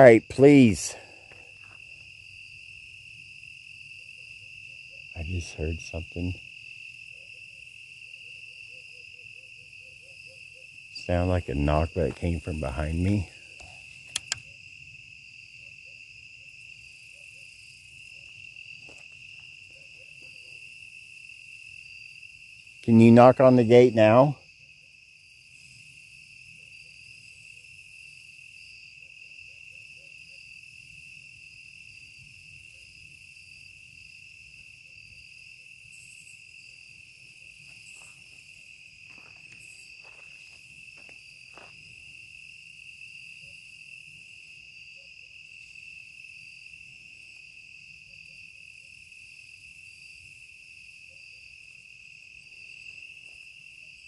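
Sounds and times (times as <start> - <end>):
crickets and insects trilling: 0.0 - 54.0
faint clicks: 13.6 - 14.5.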